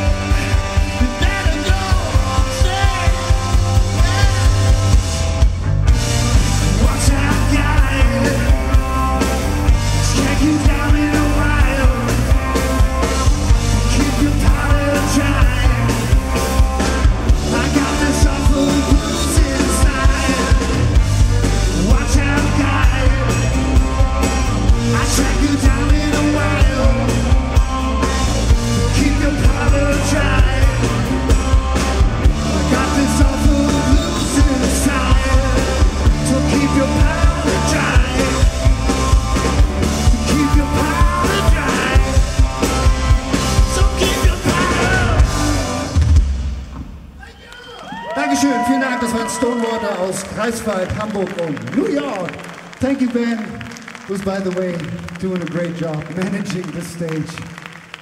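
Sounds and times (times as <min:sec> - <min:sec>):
live rock band playing: 0:00.0 - 0:47.2.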